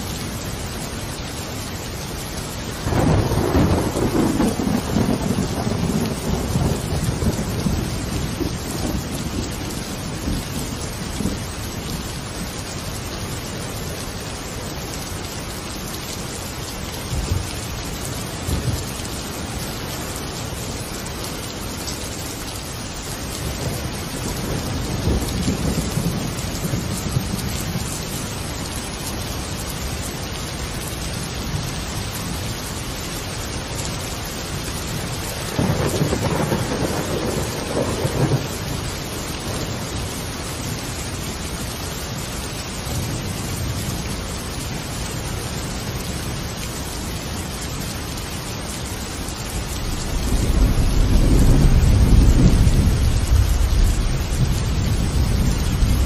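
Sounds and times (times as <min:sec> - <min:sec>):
steady rain: 0:00.0 - 0:56.0
thunder rumbling: 0:02.7 - 0:11.6, 0:23.4 - 0:28.0, 0:35.4 - 0:40.1, 0:49.5 - 0:56.0.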